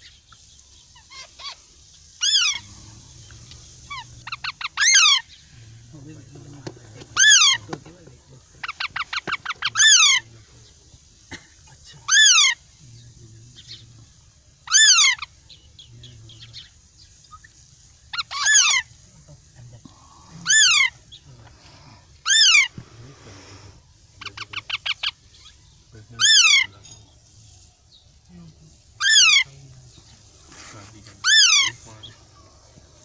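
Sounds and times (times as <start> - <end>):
parakeet chick begging calls: 2.2 - 2.7, 3.9 - 5.4, 7.0 - 7.8, 8.6 - 10.3, 12.0 - 12.6, 14.6 - 15.6, 18.1 - 18.9, 20.4 - 21.0, 22.2 - 22.7, 24.2 - 26.8, 29.0 - 29.5, 31.2 - 32.2.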